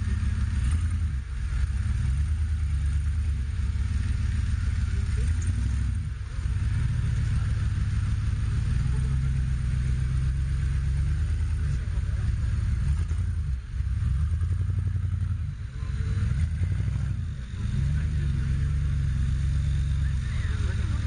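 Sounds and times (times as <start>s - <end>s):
engine rumbling under load: 0.0s - 21.0s.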